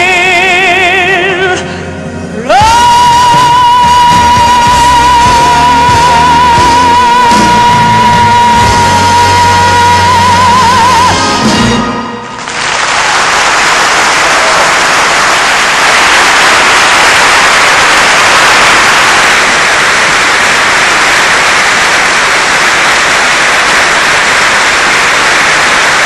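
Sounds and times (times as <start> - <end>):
large audience applauding: 12.3 - 26.0.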